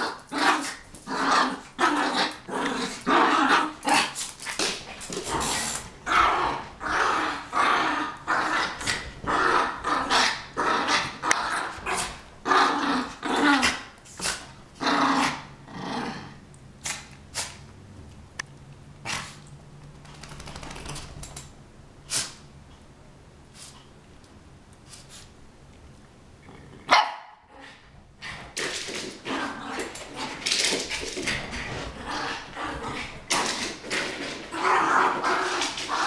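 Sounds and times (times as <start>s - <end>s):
dogs growling: 0.0s - 16.4s, 29.2s - 36.0s
dogs barking: 26.9s - 27.4s.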